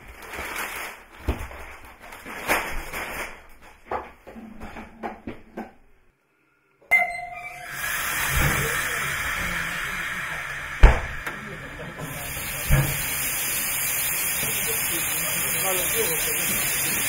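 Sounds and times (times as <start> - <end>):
steam hissing from locomotive: 7.6 - 17.0
heavy thump: 10.8 - 11.3.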